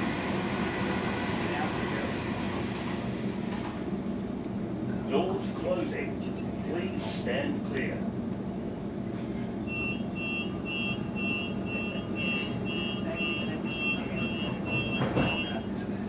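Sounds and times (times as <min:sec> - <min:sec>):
stopped train humming: 0:00.0 - 0:16.0
high two-tone warning beep: 0:09.7 - 0:15.7
thump: 0:15.0 - 0:15.4.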